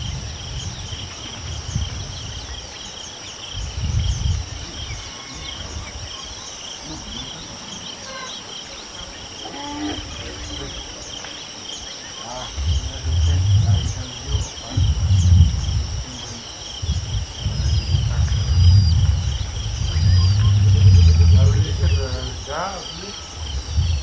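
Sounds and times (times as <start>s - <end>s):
shrill insect chorus: 0.0s - 24.0s
low rumble: 12.3s - 24.0s.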